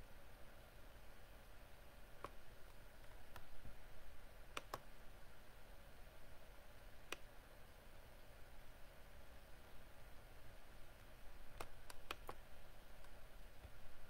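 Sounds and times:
faint low hum: 0:00.0 - 0:14.0
computer mouse clicking: 0:02.2 - 0:03.5, 0:04.5 - 0:04.9, 0:07.0 - 0:07.3, 0:11.0 - 0:12.4.

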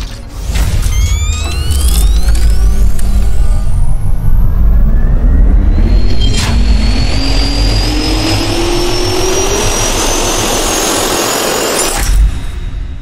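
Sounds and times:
sharp hit: 0:00.0 - 0:04.2
heavy rumble and rushing: 0:00.3 - 0:13.0
jet turbine whine rising: 0:00.4 - 0:13.0.

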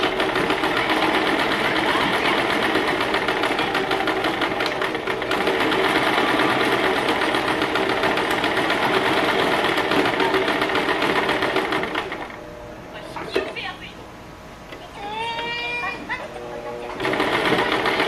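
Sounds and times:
sewing machine stitching fast: 0:00.0 - 0:12.4, 0:17.0 - 0:18.0.

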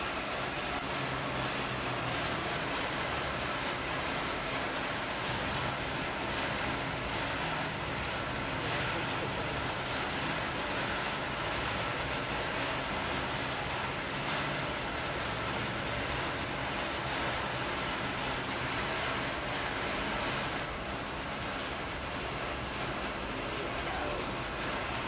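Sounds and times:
steady hiss of noise: 0:00.0 - 0:25.0.

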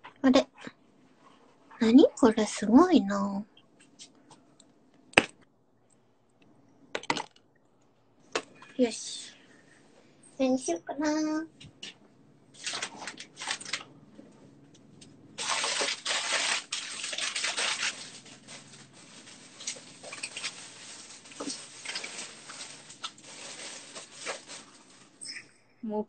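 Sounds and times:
tap water running and splashing: 0:15.4 - 0:18.0.

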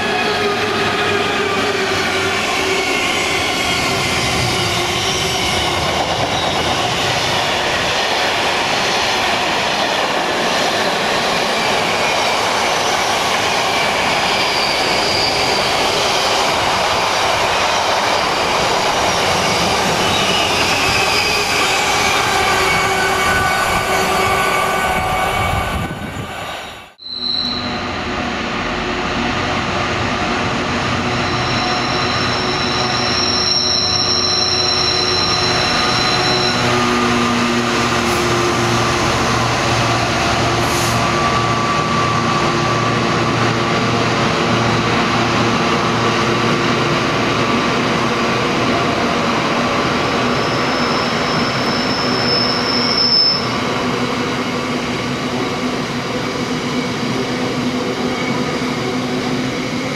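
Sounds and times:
train rumbling on rails: 0:00.0 - 0:59.9
high-pitched wheel squeal: 0:13.8 - 0:16.4, 0:19.3 - 0:27.9, 0:31.1 - 0:37.3, 0:50.3 - 0:53.6.

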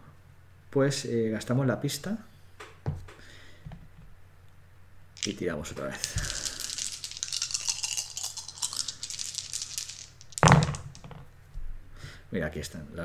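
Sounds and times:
dice rattling in hand: 0:05.2 - 0:11.2.

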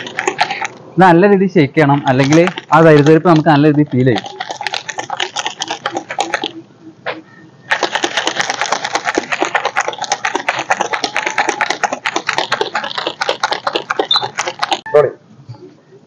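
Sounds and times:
shaker bottle rattling: 0:00.0 - 0:00.8, 0:02.0 - 0:06.6, 0:07.7 - 0:14.8.

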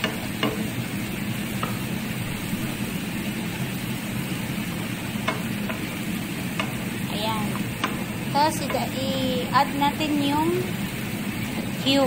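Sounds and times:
spatula clicking against pan: 0:00.0 - 0:00.8, 0:05.2 - 0:09.2
food sizzling in a pan: 0:00.0 - 0:12.0.

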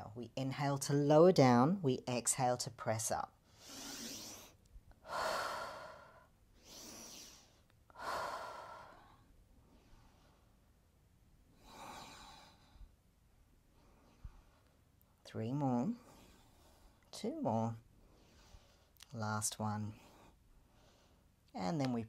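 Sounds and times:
woman breathing hard: 0:03.5 - 0:10.6, 0:11.5 - 0:13.0.

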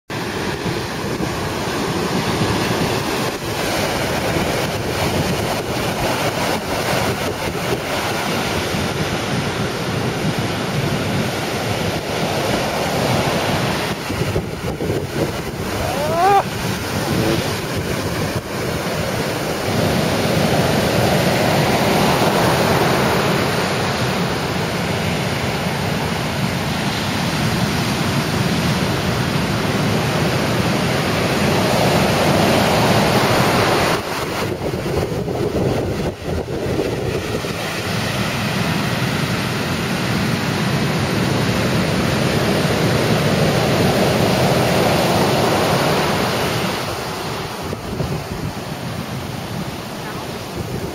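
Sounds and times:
heavy surf roaring on beach: 0:00.1 - 0:50.9
wind on microphone: 0:00.2 - 0:50.9
brief high cry: 0:15.8 - 0:16.5.

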